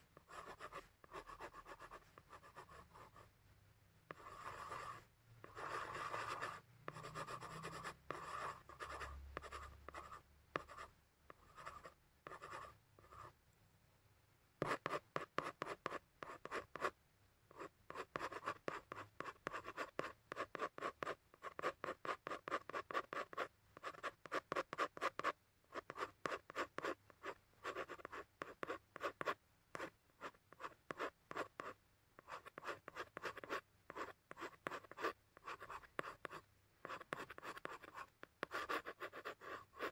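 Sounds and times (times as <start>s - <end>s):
pen strokes scratching on paper: 0.2s - 3.3s, 4.1s - 13.3s, 14.6s - 39.9s.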